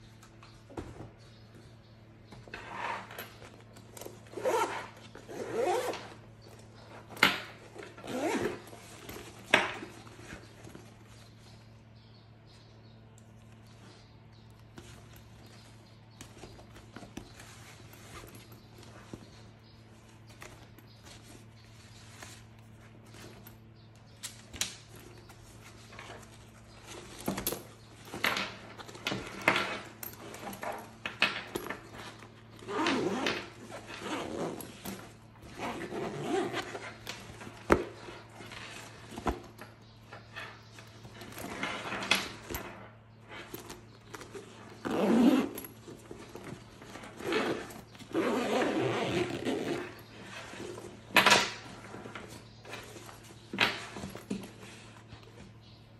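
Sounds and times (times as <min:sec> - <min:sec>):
fabric bag rustling and scraping: 0:02.5 - 0:11.6, 0:14.8 - 0:23.6, 0:31.6 - 0:39.6, 0:43.2 - 0:55.2.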